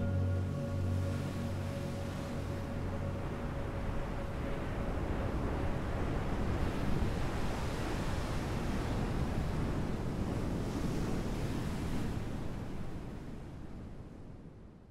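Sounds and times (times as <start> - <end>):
ocean surf rushing: 0.0 - 10.6
wind: 0.0 - 14.9.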